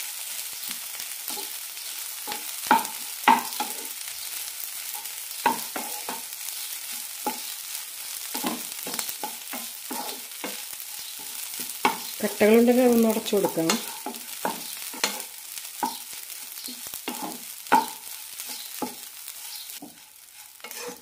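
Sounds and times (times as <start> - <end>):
hot pan hissing: 0.0 - 21.0
wooden spatula scraping a pan: 4.8 - 21.0.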